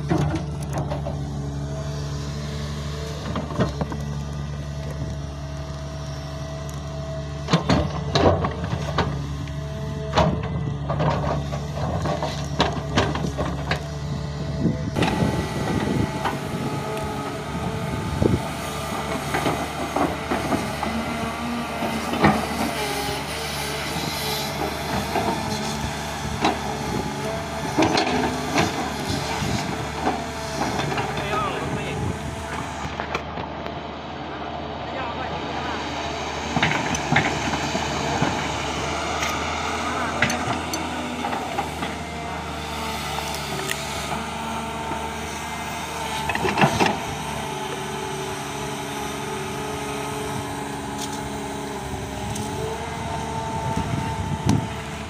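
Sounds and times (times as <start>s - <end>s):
excavator diesel engine: 0.0s - 55.0s
bright busy rattle: 14.6s - 33.5s, 34.8s - 55.0s.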